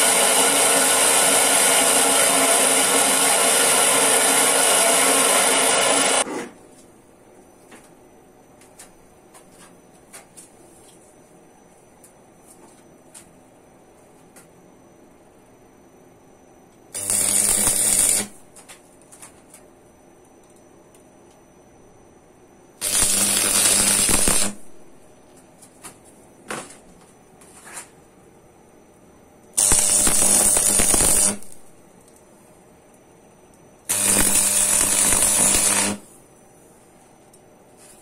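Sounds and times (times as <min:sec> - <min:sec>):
crackling welding arc: 0:00.0 - 0:06.3, 0:16.9 - 0:18.8, 0:22.8 - 0:24.9, 0:29.6 - 0:31.8, 0:33.9 - 0:36.2.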